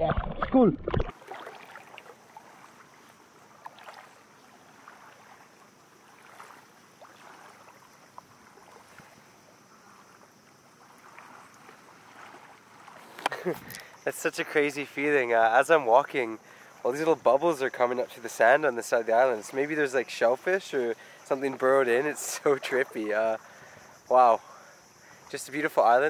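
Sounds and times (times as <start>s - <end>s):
feet wading through shallow water: 0.0s - 26.0s
small ticks: 12.9s - 14.0s.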